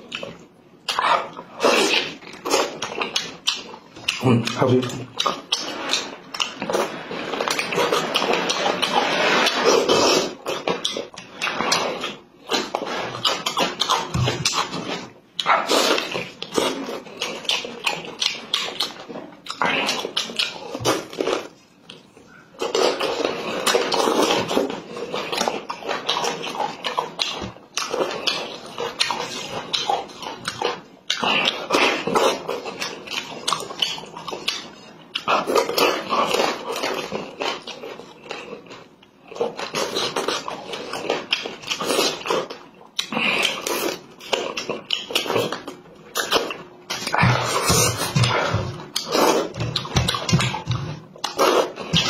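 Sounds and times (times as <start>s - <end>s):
man chewing: 0.0s - 52.0s.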